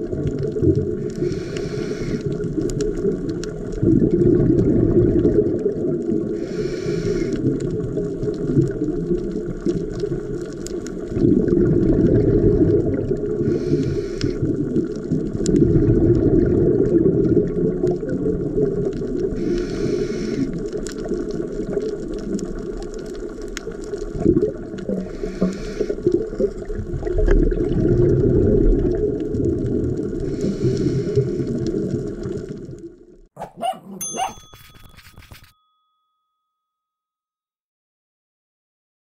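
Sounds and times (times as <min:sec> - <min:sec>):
underwater breathing bubbles: 0:00.0 - 0:32.8
breath hissing: 0:01.2 - 0:02.3, 0:06.4 - 0:07.4, 0:13.4 - 0:14.4, 0:19.4 - 0:20.6, 0:25.0 - 0:26.1, 0:30.2 - 0:31.6
short chiming jingle: 0:33.9 - 0:37.1.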